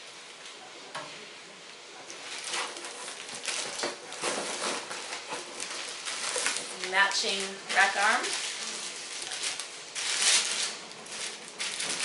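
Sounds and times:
plastic wrap crinkling: 0:02.0 - 0:12.0.

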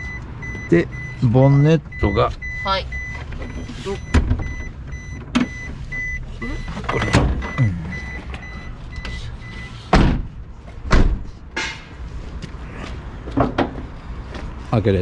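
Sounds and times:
rapid high warning beeps: 0:00.0 - 0:09.9
loud handling clunks: 0:09.9 - 0:11.9.

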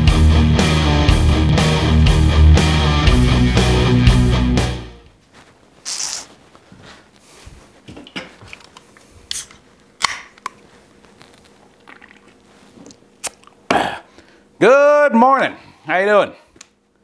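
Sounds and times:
beer can hiss: 0:05.9 - 0:06.3.

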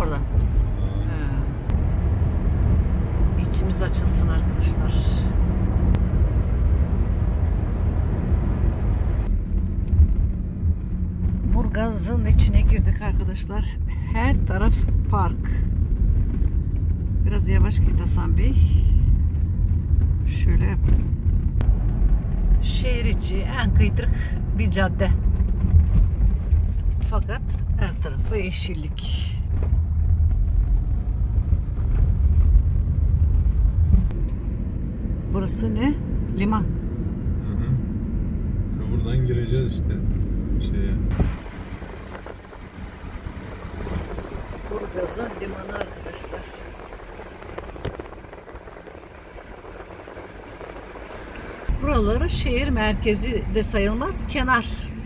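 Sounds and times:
engine and tyre rumble: 0:00.0 - 0:55.0
road noise: 0:00.0 - 0:55.0
road hiss: 0:41.1 - 0:52.5.

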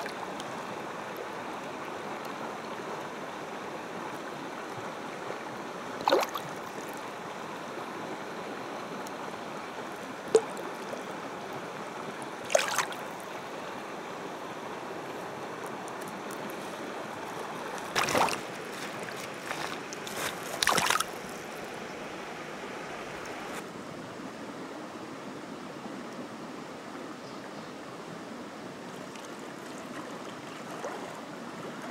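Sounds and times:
running water: 0:00.0 - 0:23.6, 0:28.6 - 0:31.9
fish splashing: 0:06.0 - 0:06.6, 0:12.5 - 0:13.1, 0:17.8 - 0:21.3.

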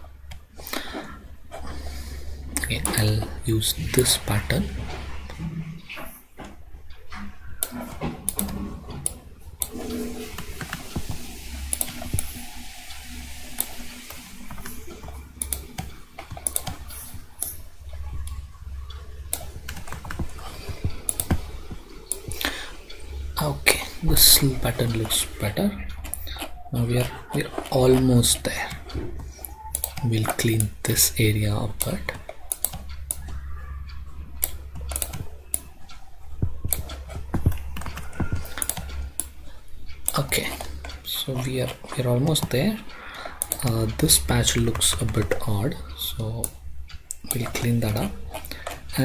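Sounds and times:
low hum: 0:00.0 - 0:48.9
keyboard and mouse clicking: 0:00.3 - 0:49.0
mouse and keyboard clicks: 0:32.0 - 0:39.3.

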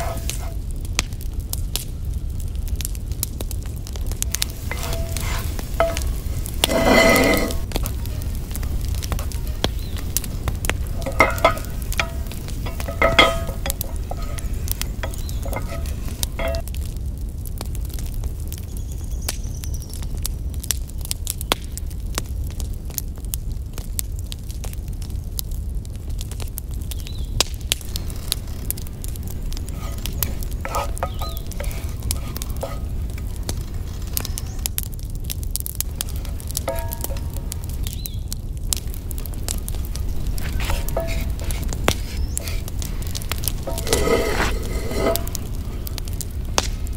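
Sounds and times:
wooden spatula scraping pan: 0:00.0 - 0:00.6, 0:04.2 - 0:16.6, 0:27.8 - 0:34.5, 0:36.0 - 0:37.9, 0:38.8 - 0:46.2
garlic sizzling in oil: 0:00.0 - 0:00.7, 0:03.6 - 0:16.8, 0:27.0 - 0:35.2, 0:35.8 - 0:46.9
wood fire crackling: 0:00.0 - 0:46.9
pan ringing: 0:08.3 - 0:16.6.

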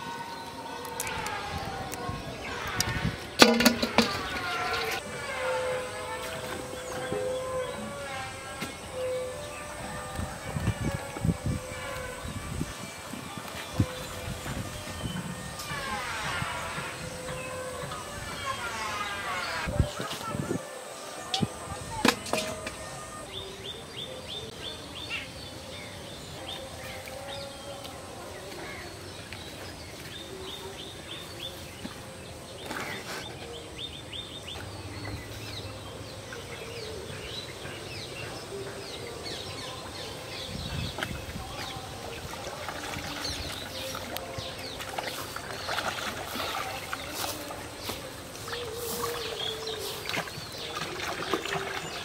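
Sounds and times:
fish splashing water: 0:42.1 - 0:52.0.

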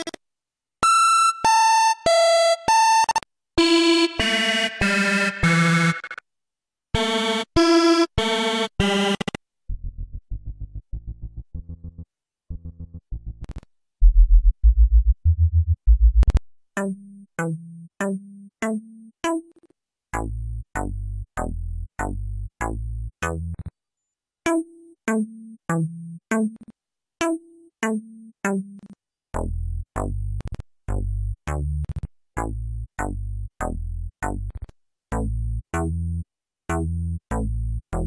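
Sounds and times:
deep sub-bass notes: 0:09.7 - 0:16.4, 0:20.2 - 0:23.7, 0:29.4 - 0:38.0
staccato synth bass notes: 0:09.8 - 0:16.4, 0:20.2 - 0:23.7, 0:29.4 - 0:38.0.

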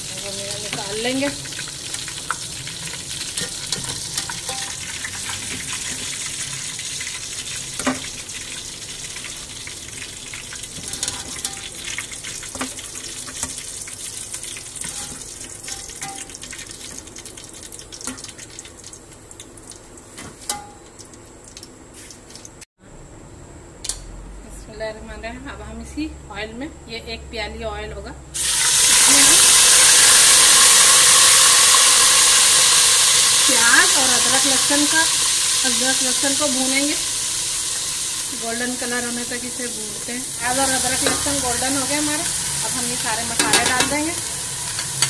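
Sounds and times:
food sizzling in hot oil: 0:00.0 - 0:22.3, 0:28.4 - 0:45.0
spoon knocking metal pot: 0:43.4 - 0:44.1.

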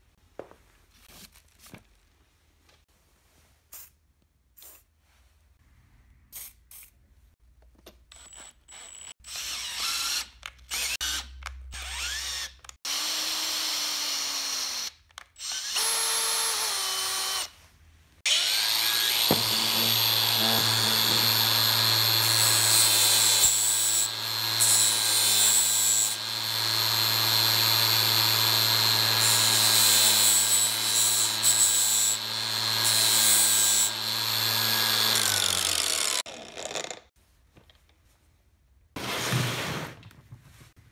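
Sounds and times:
electric drill drilling steel: 0:08.1 - 0:17.5, 0:18.3 - 0:37.0
angle grinder running: 0:18.3 - 0:37.0.

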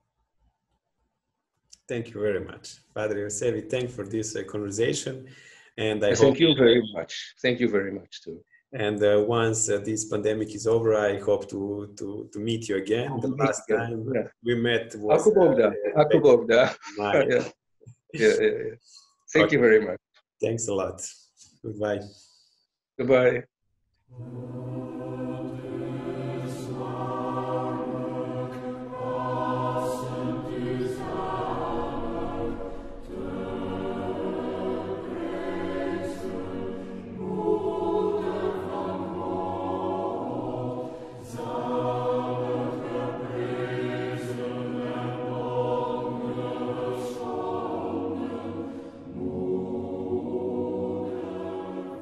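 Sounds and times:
choir singing a chant: 0:03.0 - 0:06.9, 0:08.9 - 0:11.7, 0:12.9 - 0:14.0, 0:18.2 - 0:18.6, 0:24.2 - 0:52.0.

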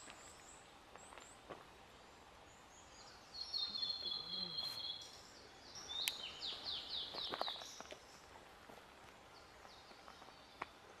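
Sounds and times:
bird whistling song: 0:03.0 - 0:07.9.

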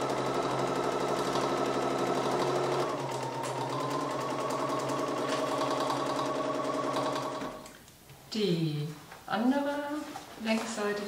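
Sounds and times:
sewing machine running: 0:00.0 - 0:07.7.

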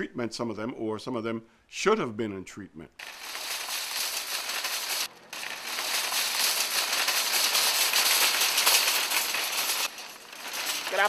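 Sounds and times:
shopping cart rattling on asphalt: 0:03.0 - 0:11.0.

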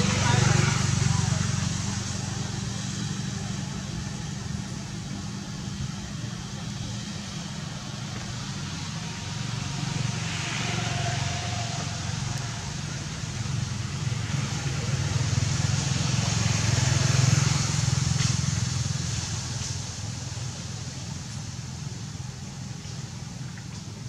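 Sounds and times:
motorbike engines passing: 0:00.0 - 0:24.0
road traffic hum: 0:00.0 - 0:24.0.

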